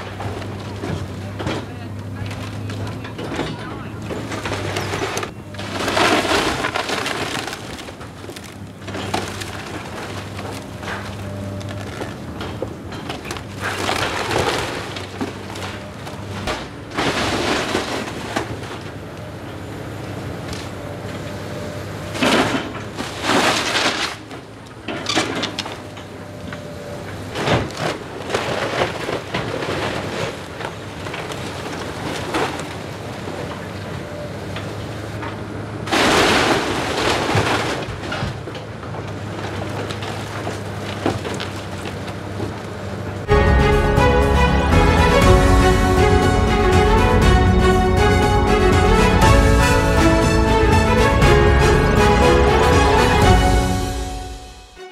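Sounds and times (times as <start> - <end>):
wood splintering: 0.0 - 18.9, 22.1 - 25.9
debris falling: 0.0 - 19.0, 22.1 - 26.1, 27.3 - 33.8, 35.2 - 54.8
excavator diesel engine: 0.0 - 54.9
wood cracking and snapping: 4.3 - 18.8, 35.9 - 42.7.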